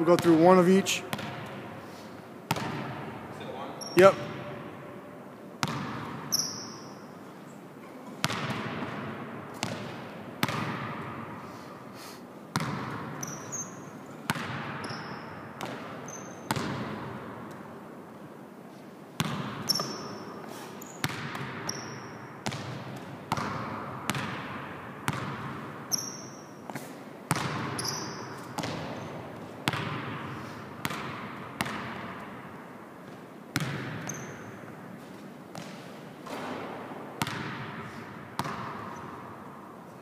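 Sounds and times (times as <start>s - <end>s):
basketball bouncing on wooden floor: 1.1s - 1.6s, 2.5s - 3.0s, 5.6s - 6.4s, 8.2s - 11.1s, 12.5s - 13.4s, 14.3s - 17.1s, 19.2s - 20.0s, 21.0s - 21.8s, 22.4s - 25.8s, 27.3s - 32.3s, 33.6s - 34.5s, 35.5s - 37.8s, 38.4s - 39.0s
sneaker squeaks: 3.6s - 4.3s, 5.6s - 7.2s, 12.6s - 16.7s, 19.2s - 22.3s, 25.9s - 29.2s, 33.9s - 36.5s.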